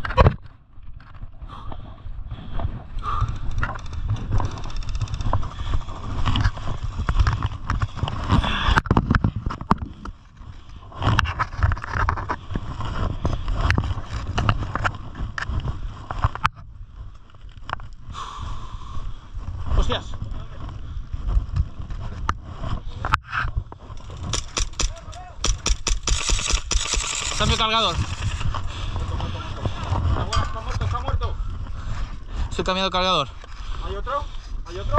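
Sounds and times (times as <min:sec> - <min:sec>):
wind on microphone: 0:00.0 - 0:34.9
gear rattling: 0:03.0 - 0:08.2, 0:23.9 - 0:28.7
footsteps on dirt path: 0:19.3 - 0:32.5.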